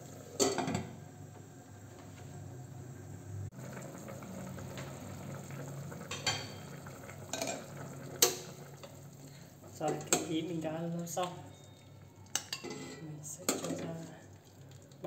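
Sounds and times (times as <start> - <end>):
low cooking hum: 0.0 - 15.0
lid and utensil clinking on pot: 12.3 - 13.9.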